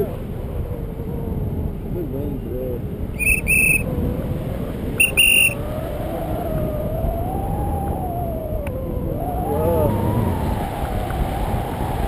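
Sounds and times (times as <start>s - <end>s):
wind on microphone: 0.0s - 12.0s
shrill whistle blowing: 3.2s - 3.8s, 5.0s - 5.6s.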